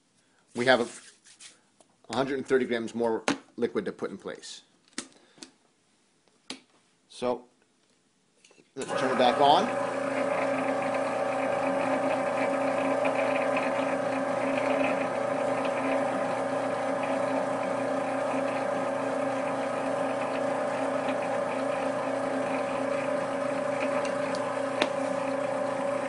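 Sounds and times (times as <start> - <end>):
pasta extruder motor humming: 8.8 - 26.0.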